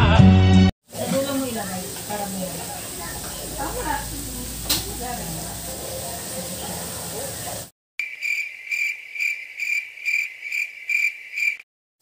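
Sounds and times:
cricket chirping sound effect: 8.0s - 11.6s.

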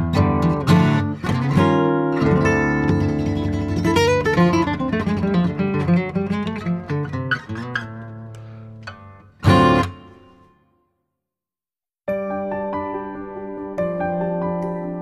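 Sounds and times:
acoustic guitar picked notes: 0.0s - 10.7s.

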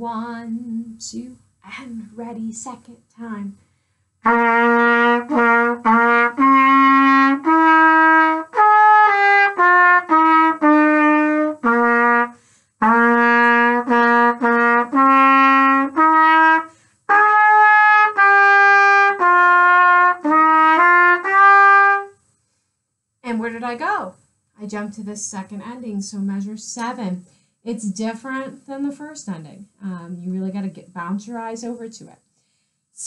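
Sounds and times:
solo trumpet melody: 4.2s - 22.2s.

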